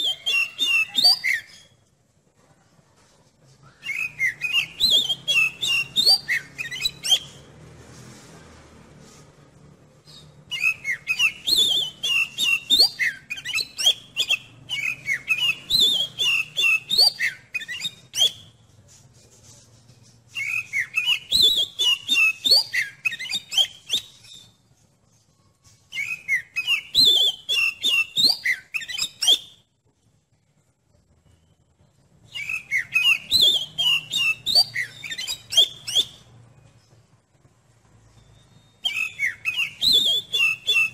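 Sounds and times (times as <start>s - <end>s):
bird singing whistled phrases: 0.0s - 1.8s, 3.6s - 7.5s, 10.0s - 18.6s, 20.3s - 24.6s, 25.9s - 29.7s, 32.2s - 36.4s, 38.1s - 40.9s.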